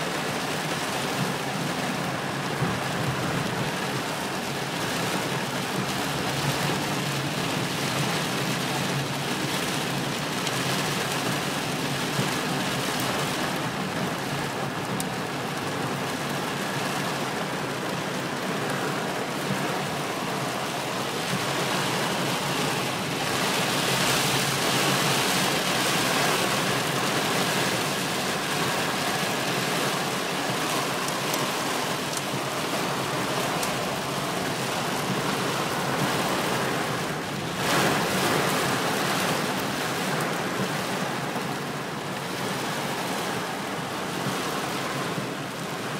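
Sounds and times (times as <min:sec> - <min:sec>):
heavy rain drumming on car roof: 0:00.0 - 0:45.9.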